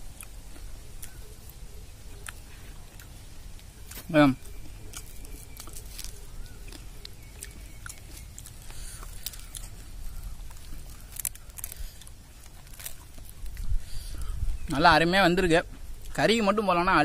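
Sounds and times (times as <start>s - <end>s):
person chewing: 0.0s - 14.4s
small clicks and crackles: 4.9s - 14.3s.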